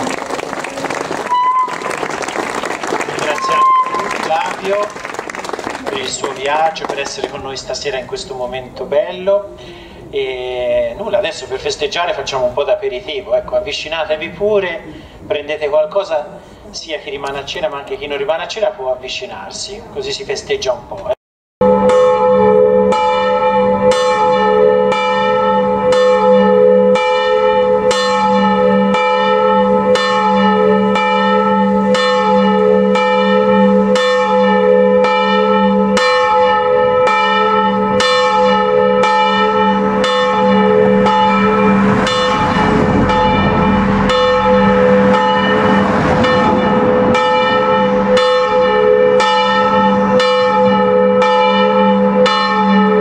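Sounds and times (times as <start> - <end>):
church bells ringing: 3.2 - 4.9, 5.9 - 14.4, 21.6 - 53.0
rush of noise: 40.8 - 48.8.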